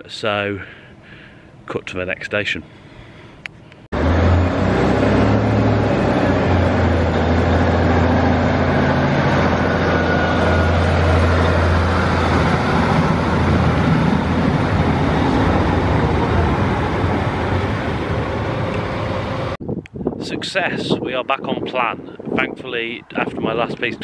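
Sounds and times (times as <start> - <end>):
train diesel engine drone: 2.7 - 19.6
train running noise: 4.0 - 19.6.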